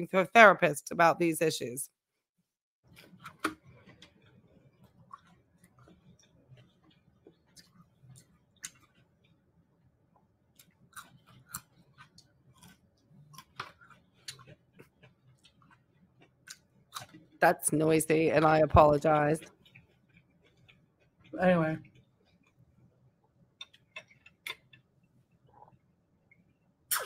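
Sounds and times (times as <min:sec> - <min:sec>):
wet chewing: 0:02.9 - 0:09.3, 0:10.5 - 0:17.2, 0:18.5 - 0:22.7, 0:23.6 - 0:25.8
mouth clicks and smacks: 0:23.6 - 0:24.8.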